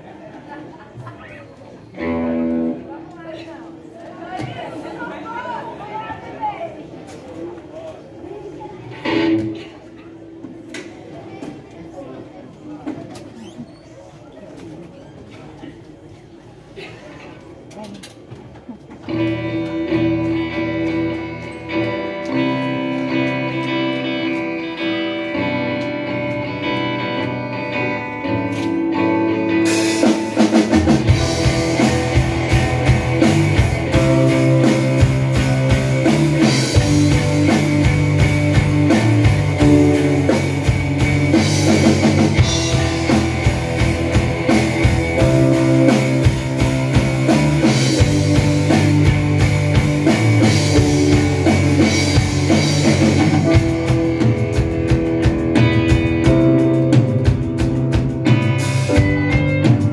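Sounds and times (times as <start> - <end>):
electric guitars: 1.9 - 3.2, 8.9 - 10.7, 19.0 - 59.9
bass guitar: 2.0 - 2.9, 9.0 - 9.6, 19.0 - 59.9
drum kit: 19.0 - 59.9.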